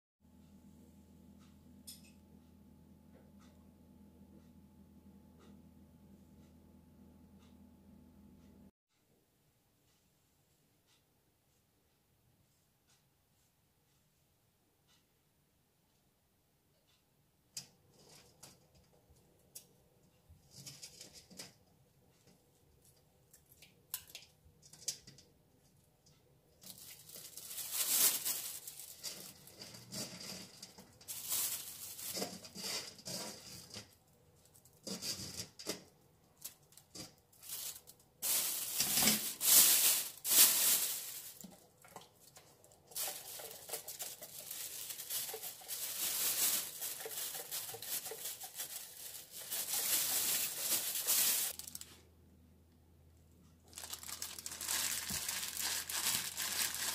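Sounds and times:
plastic bag rustling: 0:26.6 - 0:35.7, 0:36.4 - 0:52.0, 0:53.6 - 0:56.9.

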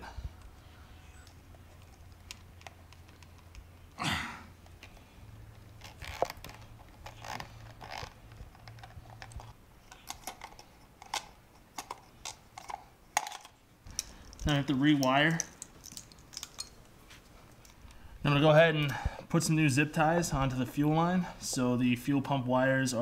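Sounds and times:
hands fitting rubber hose: 0:01.2 - 0:18.0.

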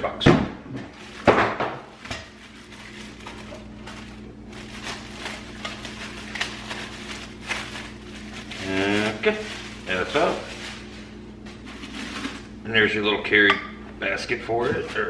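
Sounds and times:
plastic wrapping crinkling: 0:00.9 - 0:12.6.

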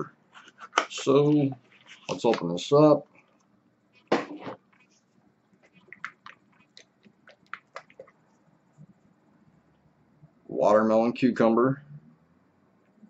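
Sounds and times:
wrapping crackling and clicking: 0:05.6 - 0:08.2.

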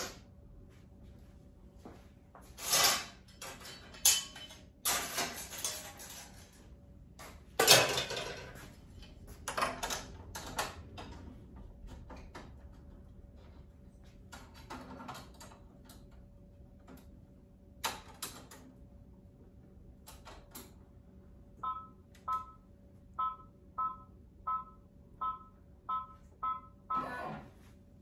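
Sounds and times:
short two-tone electronic beeps: 0:23.2 - 0:27.3.

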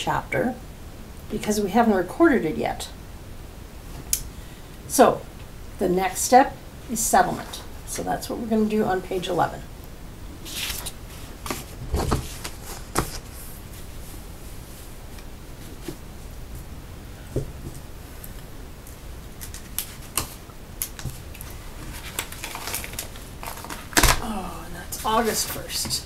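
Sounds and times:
paper rustling: 0:10.4 - 0:16.0, 0:19.4 - 0:24.2, 0:24.9 - 0:26.0.

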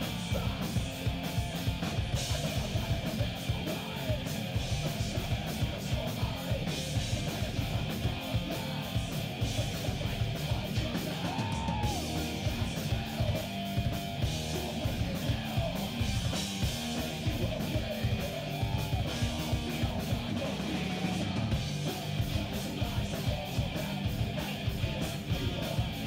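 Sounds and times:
distorted electric guitars: 0:00.0 - 0:26.0
drums: 0:00.0 - 0:26.0
shouted vocals: 0:07.2 - 0:13.6, 0:16.8 - 0:21.6.

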